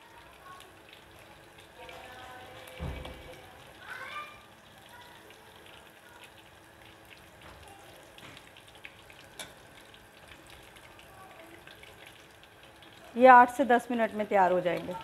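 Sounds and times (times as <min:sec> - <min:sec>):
chicken sizzling in hot oil: 0:00.0 - 0:15.0.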